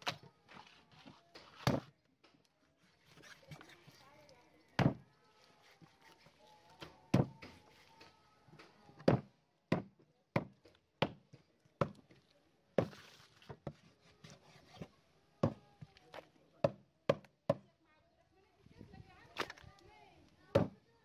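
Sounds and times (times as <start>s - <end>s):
knife chopping on wooden board: 12.8s - 13.0s.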